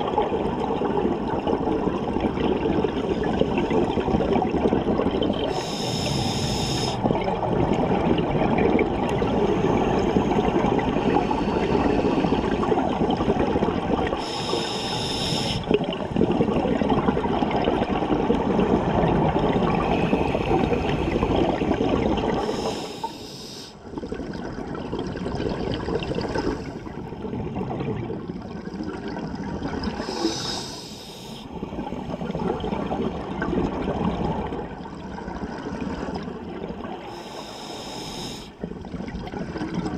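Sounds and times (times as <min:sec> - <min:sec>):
exhaled bubbles underwater: 0:00.0 - 0:39.9
regulator inhalation hiss: 0:05.5 - 0:07.0, 0:14.2 - 0:15.7, 0:22.4 - 0:23.8, 0:30.0 - 0:31.5, 0:37.1 - 0:38.6.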